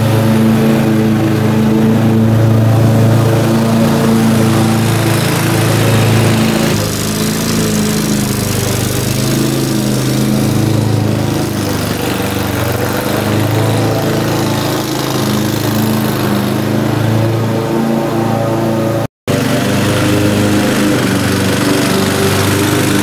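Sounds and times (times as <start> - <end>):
riding mower engine cutting grass: 0.0 - 23.0.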